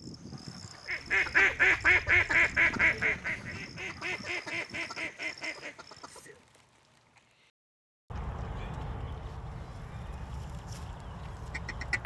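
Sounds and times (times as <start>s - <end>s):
duck quacking: 0.9s - 6.2s.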